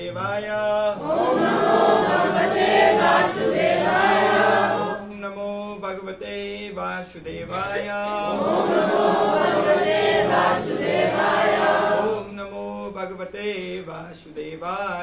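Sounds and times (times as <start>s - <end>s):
group of voices chanting: 1.0s - 5.1s, 7.4s - 12.4s
man leading a chant: 5.0s - 8.3s.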